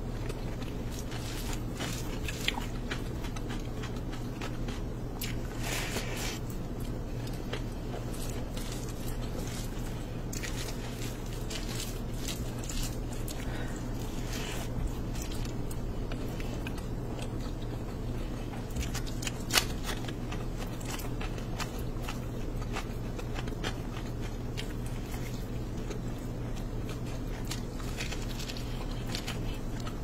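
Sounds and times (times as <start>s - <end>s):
chewing: 0.0s - 30.0s
steady low hum: 0.0s - 30.0s
hand squishing oily food: 0.1s - 30.0s.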